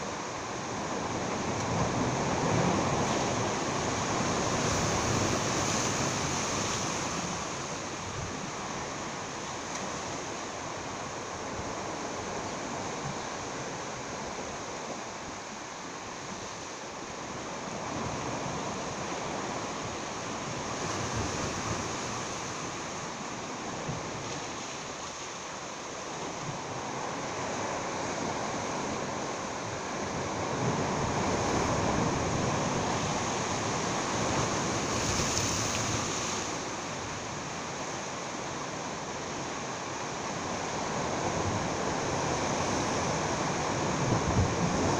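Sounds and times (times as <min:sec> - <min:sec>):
surf washing against rocks: 0:00.0 - 0:14.5, 0:17.2 - 0:44.9
wind on microphone: 0:40.2 - 0:44.9.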